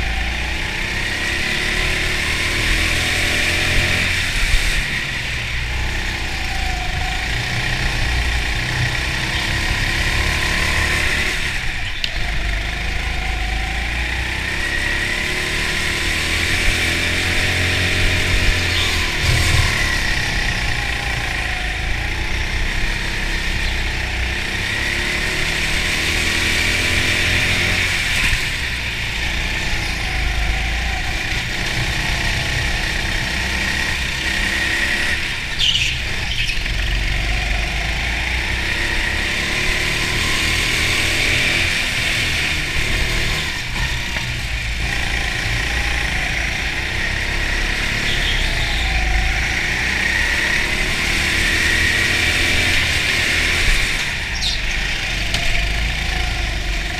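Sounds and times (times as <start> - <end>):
go-kart motor running: 0.0 - 56.9
high squeal: 17.5 - 24.0, 47.4 - 50.3.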